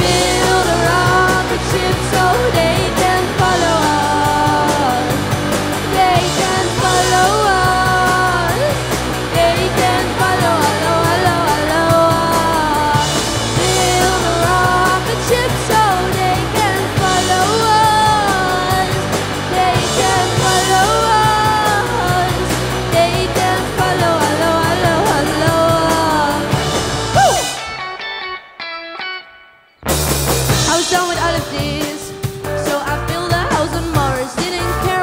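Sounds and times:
man singing: 0.0s - 5.2s, 5.9s - 26.6s
bass guitar: 0.0s - 35.0s
drums: 0.0s - 35.0s
electric guitar: 0.0s - 35.0s.

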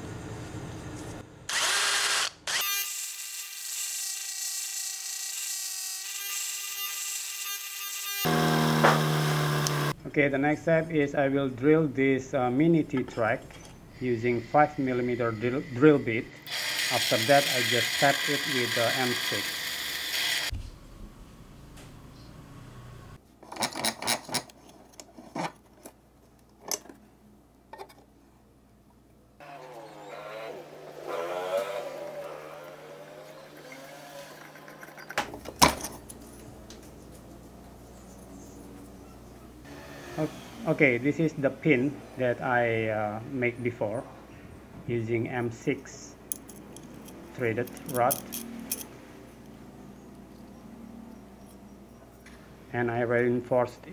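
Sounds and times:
drill motor hum: 1.5s - 10.0s, 14.3s - 20.5s, 29.4s - 35.1s
high grinding hiss: 14.0s - 20.5s.

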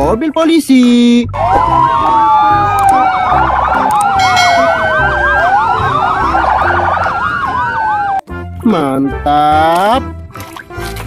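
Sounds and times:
police sirens yelping and wailing: 1.3s - 8.4s.

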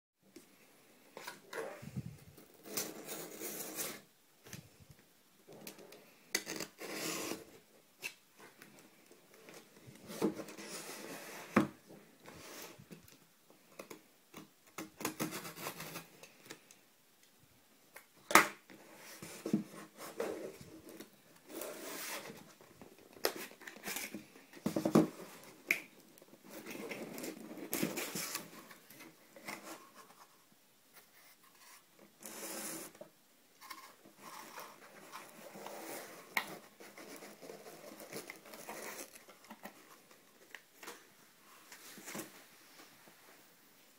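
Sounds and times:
cardboard and tape scraping: 33.6s - 40.0s.

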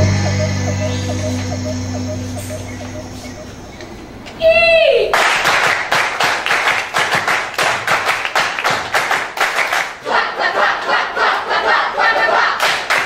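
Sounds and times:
audience applauding: 5.1s - 10.0s.

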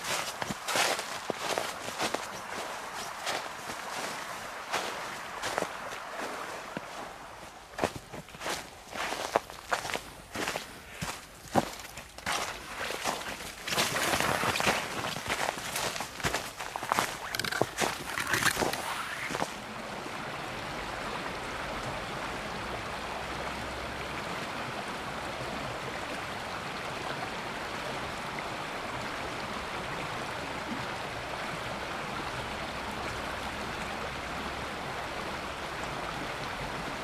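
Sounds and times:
river rapids rushing: 0.0s - 24.1s.

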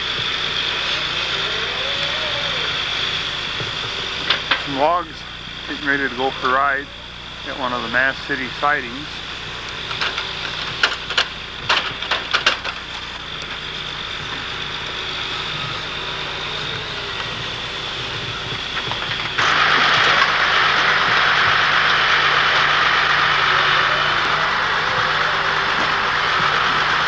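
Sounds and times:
diesel engine running: 0.0s - 27.0s
logs knocking: 18.3s - 22.0s.

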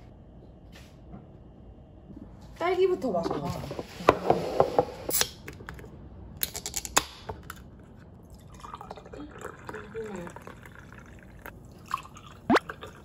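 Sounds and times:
soda poured into glass: 8.3s - 13.0s.

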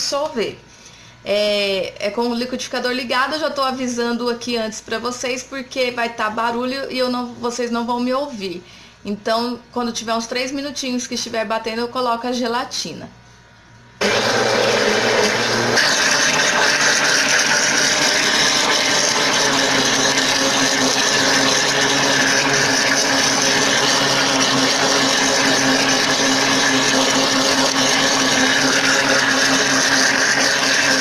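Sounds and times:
blender running: 14.0s - 31.0s.

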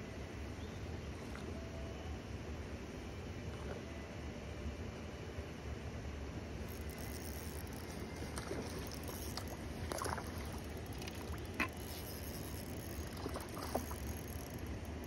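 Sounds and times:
water splashing and sloshing: 6.7s - 15.0s.

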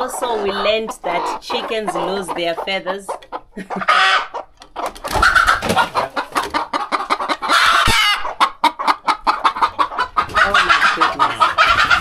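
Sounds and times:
hens squawking and clucking: 0.0s - 12.0s.

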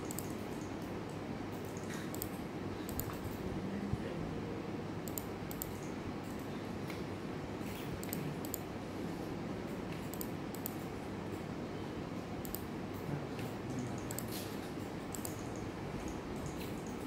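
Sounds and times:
computer mouse clicks: 0.0s - 3.4s, 5.0s - 7.0s, 7.7s - 8.7s, 9.9s - 11.5s, 12.4s - 17.0s
room hum: 0.0s - 17.0s.

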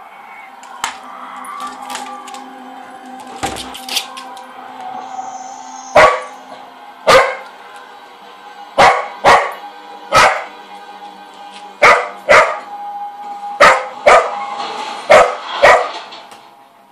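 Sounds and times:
quiet background music: 0.0s - 16.9s
dog barking: 6.0s - 6.3s, 7.1s - 7.4s, 8.8s - 10.5s, 11.8s - 12.6s, 13.6s - 14.3s, 15.1s - 16.0s.

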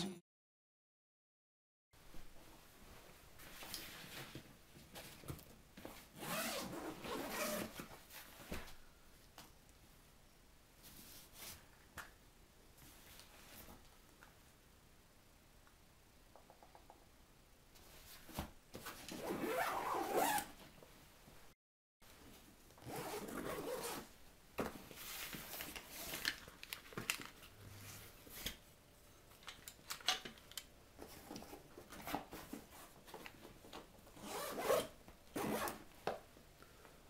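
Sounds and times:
zipper being drawn: 6.2s - 7.8s, 19.1s - 20.5s, 22.8s - 24.1s, 34.2s - 35.8s.

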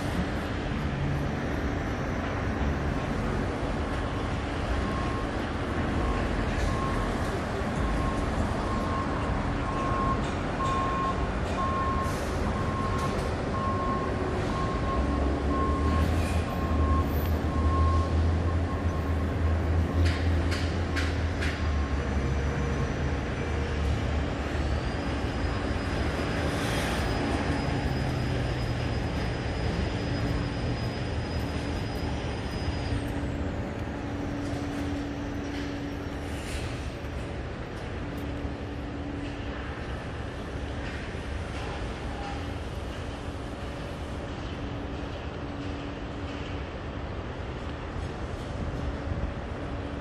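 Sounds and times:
city hum: 0.0s - 50.0s
short beeps: 6.0s - 7.1s, 7.8s - 19.2s.

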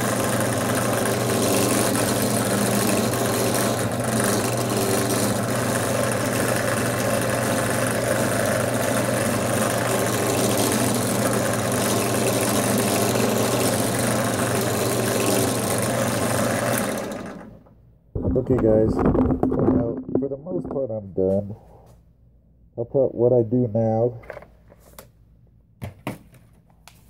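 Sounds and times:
drill press humming: 0.0s - 20.2s.

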